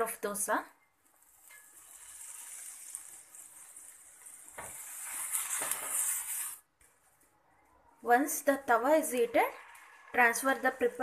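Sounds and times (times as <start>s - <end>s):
water sizzling on hot griddle: 1.0s - 6.7s, 8.8s - 11.0s.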